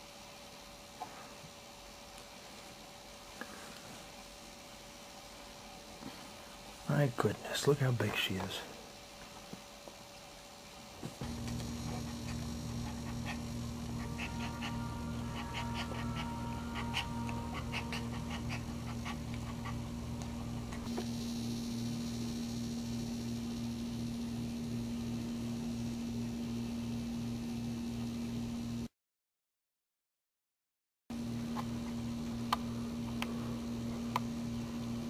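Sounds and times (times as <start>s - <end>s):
low hum: 11.2s - 28.9s
dog whimpering and whining: 12.3s - 19.9s.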